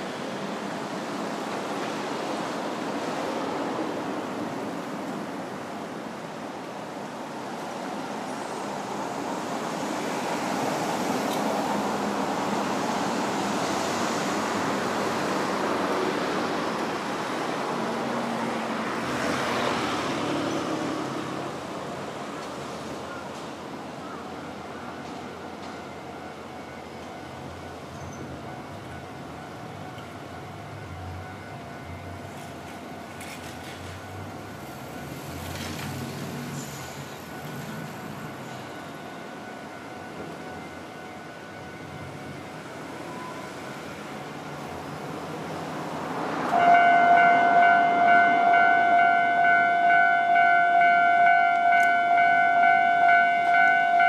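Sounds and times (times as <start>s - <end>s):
road traffic passing: 8.3s - 25.8s, 27.3s - 54.0s.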